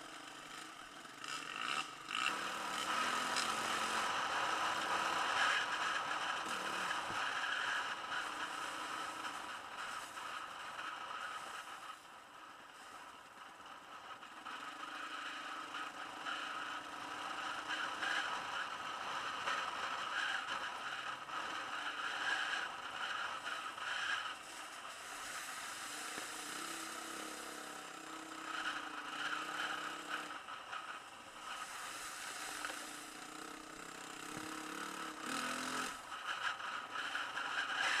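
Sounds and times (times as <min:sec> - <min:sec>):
muffled motorbike engine: 0:00.0 - 0:38.0.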